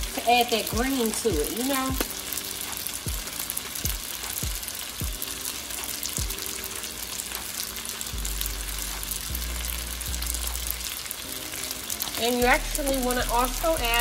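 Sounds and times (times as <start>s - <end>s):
background music with thudding beat: 0.0s - 10.9s, 12.0s - 14.0s
noodles sizzling in a pan: 0.0s - 14.0s
low bass line: 8.2s - 10.9s, 12.4s - 14.0s.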